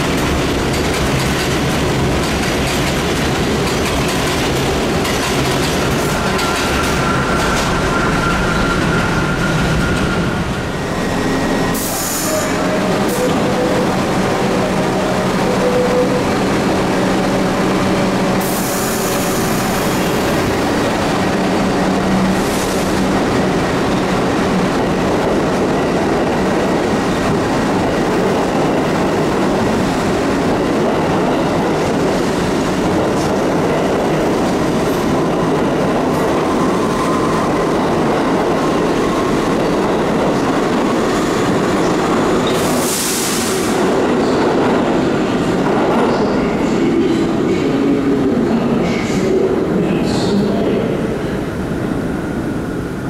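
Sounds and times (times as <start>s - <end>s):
subway train rumbling past: 0.0s - 53.0s.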